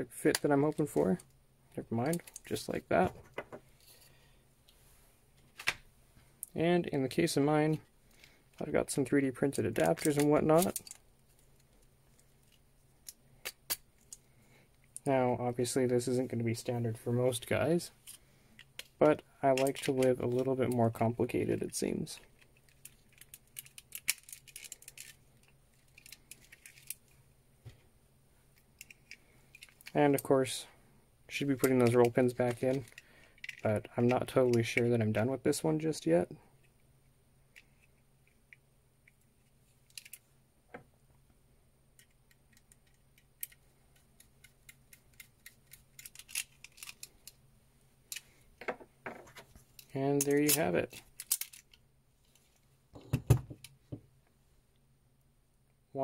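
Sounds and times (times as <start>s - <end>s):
small clicks and rattles of parts: 2.0s - 4.1s, 9.7s - 15.1s, 18.0s - 21.0s, 22.2s - 27.8s, 28.5s - 30.3s, 31.5s - 35.3s, 37.5s - 40.9s, 41.9s - 47.4s, 48.0s - 54.1s.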